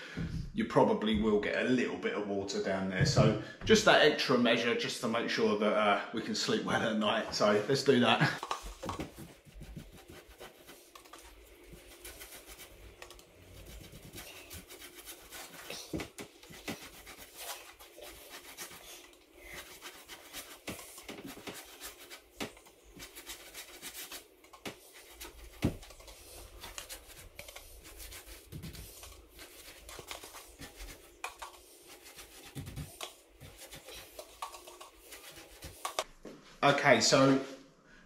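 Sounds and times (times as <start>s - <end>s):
paintbrush scratching on wood: 8.4s - 36.1s.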